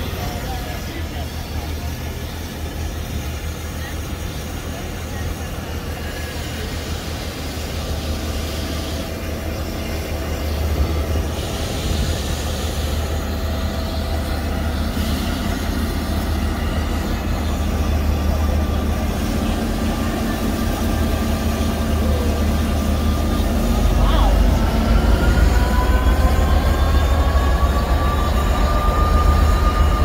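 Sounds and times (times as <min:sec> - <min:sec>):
diesel locomotive idling: 0:00.0 - 0:30.0
steam hissing: 0:00.0 - 0:30.0.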